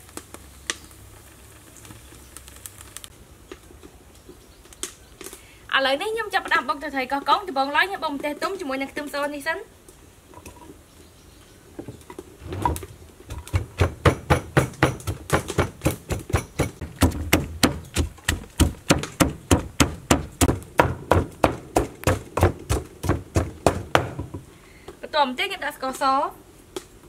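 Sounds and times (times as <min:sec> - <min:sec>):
wooden pestle pounding in mortar: 0:13.3 - 0:24.4.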